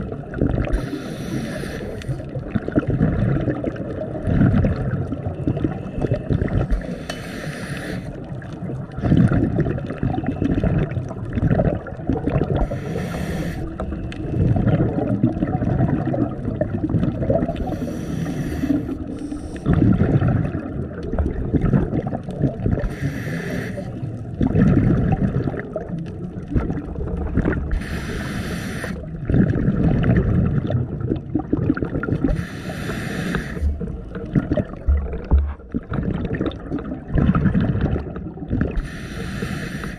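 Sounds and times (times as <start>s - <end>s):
exhaled bubbles gurgling: 0.0s - 39.9s
scuba regulator inhale hiss: 0.7s - 2.2s, 6.8s - 8.2s, 12.6s - 13.9s, 17.6s - 19.7s, 22.8s - 24.0s, 27.7s - 29.1s, 32.3s - 33.8s, 38.8s - 39.9s.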